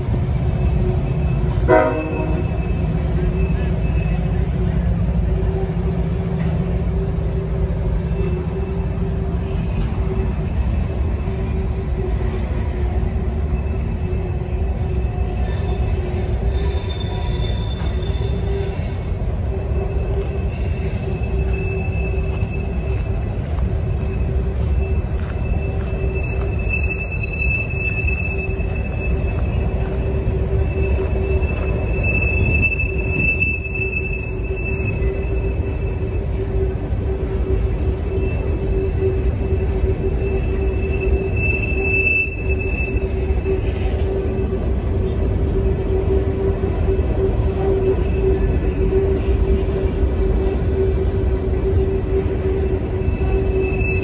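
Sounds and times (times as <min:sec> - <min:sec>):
low steady squealing tone: 0:00.0 - 0:54.0
high-pitched wheel squeal: 0:12.7 - 0:54.0.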